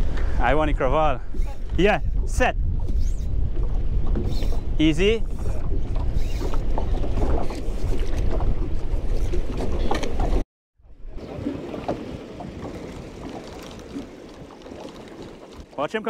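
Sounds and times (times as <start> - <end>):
wind buffeting microphone: 0.0 - 15.7
water lapping: 3.5 - 10.4, 11.0 - 16.0.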